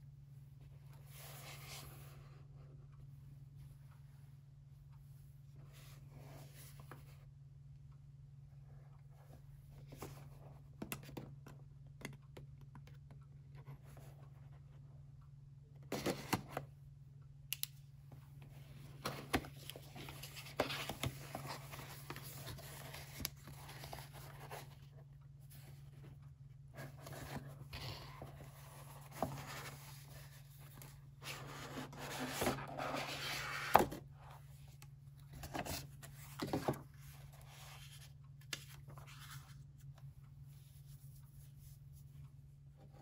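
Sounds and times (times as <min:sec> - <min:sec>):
faint low hum: 0:00.0 - 0:43.0
paper rustling: 0:19.0 - 0:24.9.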